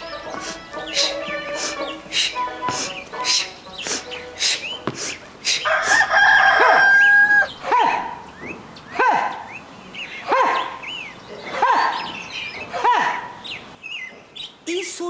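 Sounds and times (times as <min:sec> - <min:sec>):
rising and falling bird calls: 0:00.0 - 0:14.7
small birds chirping: 0:00.0 - 0:15.0
rooster crowing: 0:05.6 - 0:08.1.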